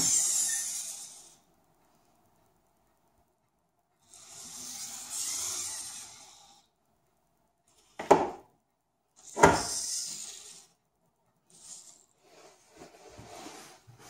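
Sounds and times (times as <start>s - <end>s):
servos whirring: 0.0s - 1.5s, 4.0s - 6.7s, 9.2s - 10.8s, 11.5s - 12.2s.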